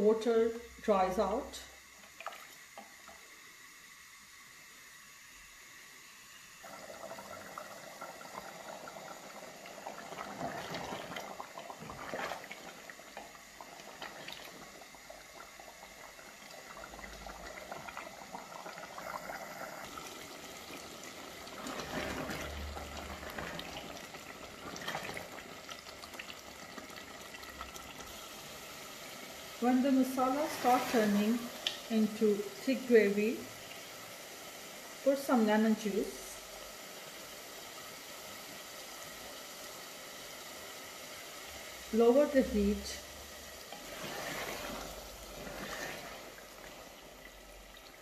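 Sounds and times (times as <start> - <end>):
masala bubbling in a pot: 0.0 - 48.0
wooden spoon stirring: 10.1 - 14.6, 21.4 - 26.2, 43.7 - 46.4.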